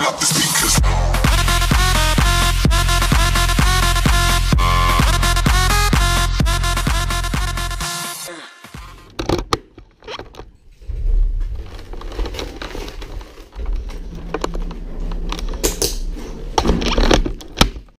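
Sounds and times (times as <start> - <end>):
clothing rustling against camera: 10.4 - 16.5
elevator rumble: 10.6 - 17.6.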